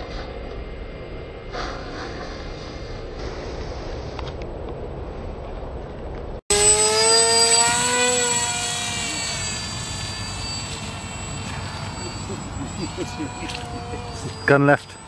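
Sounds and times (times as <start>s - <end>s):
model plane electric motor whine: 6.5s - 15.0s.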